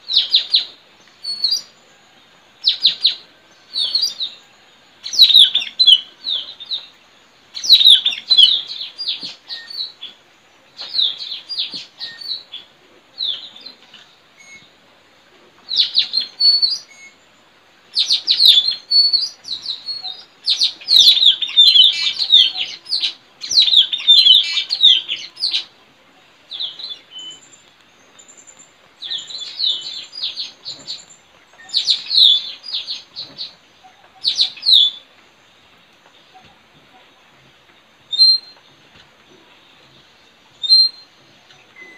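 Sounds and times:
parrots chirping: 0:05.1 - 0:06.4, 0:18.0 - 0:25.7.

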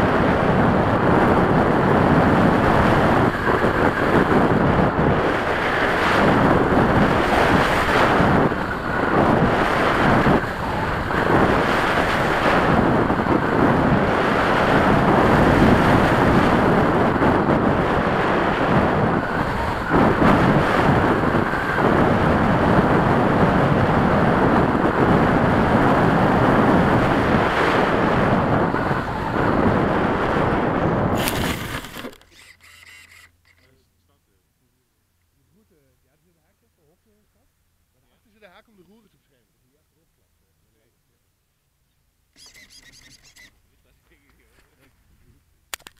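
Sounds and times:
wind buffeting microphone: 0:00.0 - 0:33.3.

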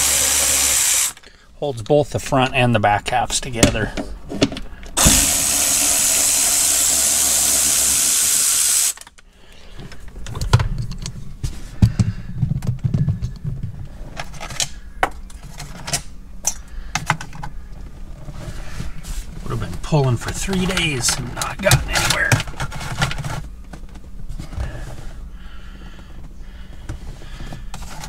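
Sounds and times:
cordless ratchet spinning: 0:00.0 - 0:01.2, 0:05.0 - 0:09.0.

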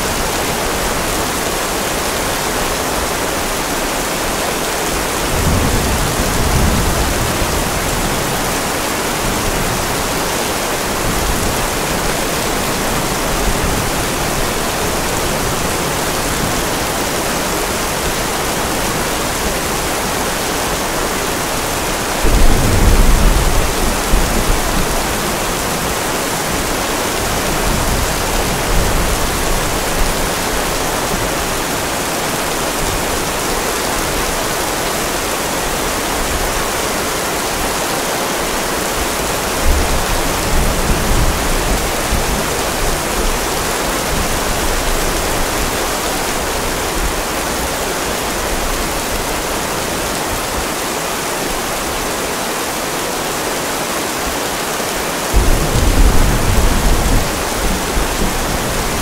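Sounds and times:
steady rain: 0:00.0 - 0:59.0
thunder rumbling: 0:21.6 - 0:31.7, 0:55.3 - 0:59.0.

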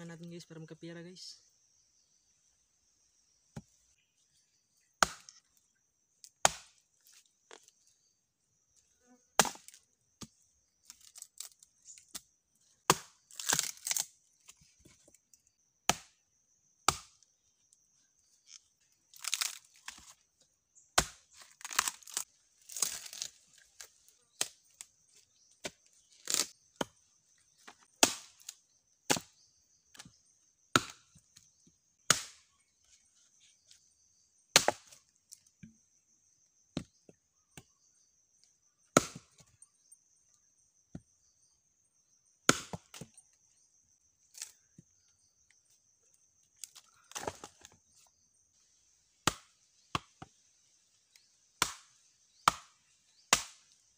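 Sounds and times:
axe chopping into log: 0:05.0 - 0:05.4, 0:06.4 - 0:06.8, 0:09.4 - 0:09.8, 0:12.9 - 0:14.0, 0:15.9 - 0:16.2, 0:16.9 - 0:17.2, 0:21.0 - 0:21.9, 0:28.0 - 0:28.5, 0:30.0 - 0:31.1, 0:32.1 - 0:32.5, 0:34.5 - 0:35.0, 0:39.0 - 0:39.5, 0:42.5 - 0:43.1, 0:49.2 - 0:50.2, 0:51.6 - 0:52.7, 0:53.3 - 0:53.6.

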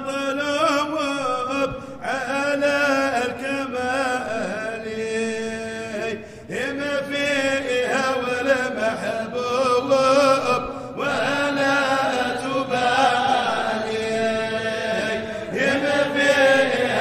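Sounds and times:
melodic vocal chant: 0:00.0 - 0:17.0.

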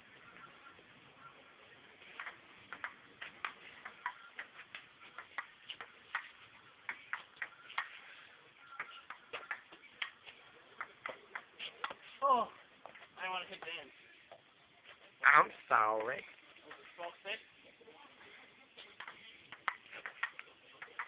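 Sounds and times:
ball bouncing on table: 0:02.1 - 0:06.3, 0:08.8 - 0:10.2, 0:10.8 - 0:12.0, 0:19.0 - 0:21.0
ping pong ball clicking off paddles: 0:02.1 - 0:08.0, 0:08.8 - 0:10.2.

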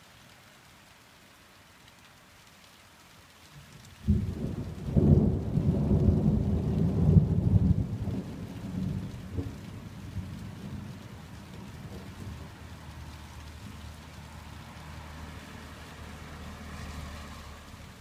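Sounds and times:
rain hiss: 0:00.0 - 0:18.0
thunder rumbling: 0:04.1 - 0:13.9.

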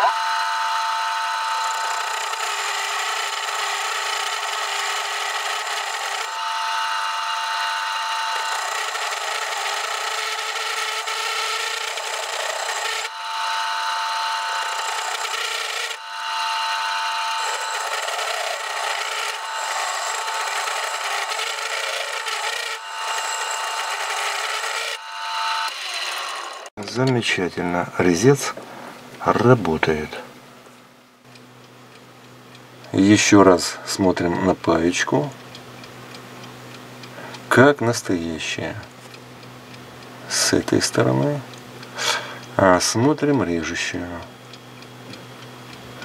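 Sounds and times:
lathe tool cutting steel: 0:00.0 - 0:26.8.

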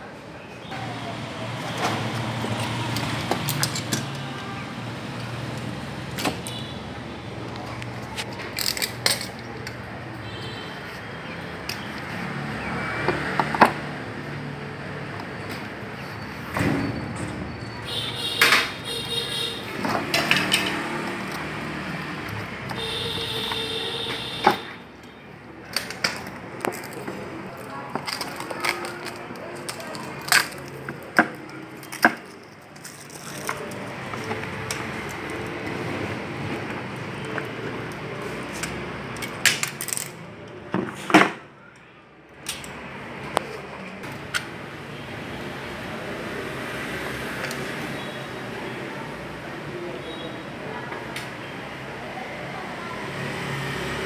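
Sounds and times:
plastic backing peeling crackle: 0:26.6 - 0:34.9.

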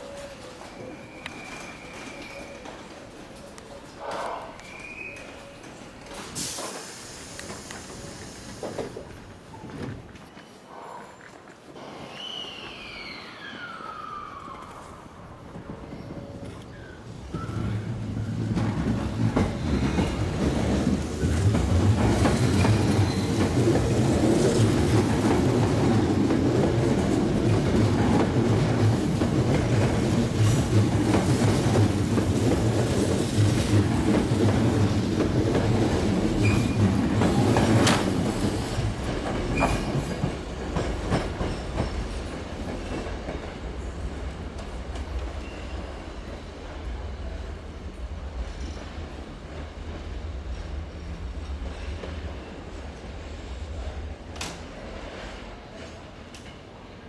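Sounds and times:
train wheel squeals: 0:00.0 - 0:02.9, 0:11.8 - 0:17.9, 0:19.1 - 0:20.8, 0:22.2 - 0:23.7, 0:36.3 - 0:38.9, 0:39.5 - 0:42.2, 0:45.3 - 0:46.5
train rumble: 0:14.6 - 0:57.0.

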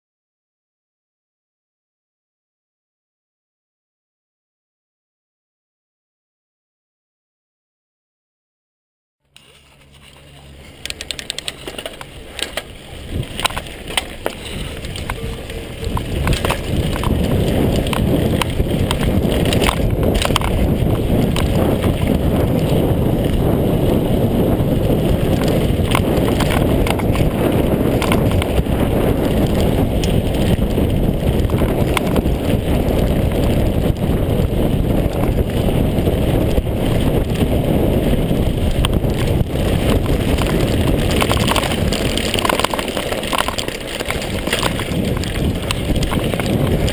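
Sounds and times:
stones and bike rattling: 0:09.3 - 0:46.9
tyres rolling over gravel: 0:09.4 - 0:46.9
wind buffeting microphone: 0:09.9 - 0:46.9.

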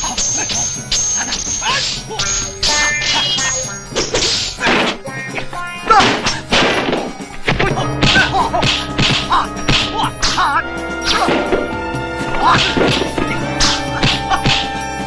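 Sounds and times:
film score music: 0:00.0 - 0:15.0
punch and kick whacks: 0:04.0 - 0:05.0, 0:05.9 - 0:10.0, 0:12.3 - 0:14.7.

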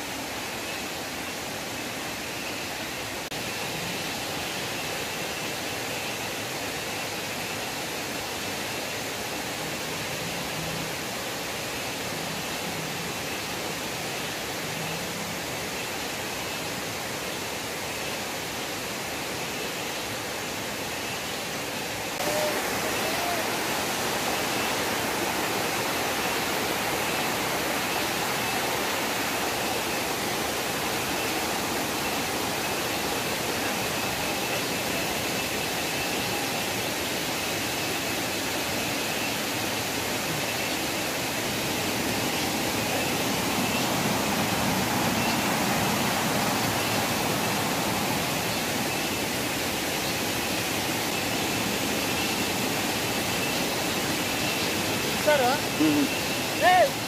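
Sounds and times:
water rushing: 0:00.0 - 0:57.0
faint high tone: 0:22.2 - 0:23.6.

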